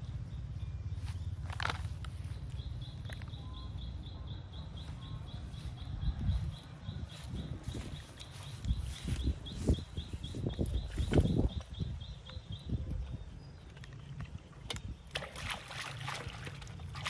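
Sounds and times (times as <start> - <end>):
footsteps rustling through grass: 5.6 - 11.5.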